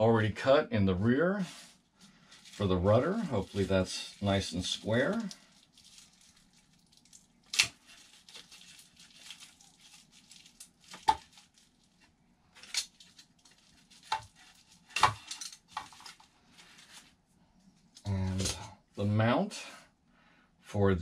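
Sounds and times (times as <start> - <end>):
plastic packaging rustling: 1.9 - 17.2.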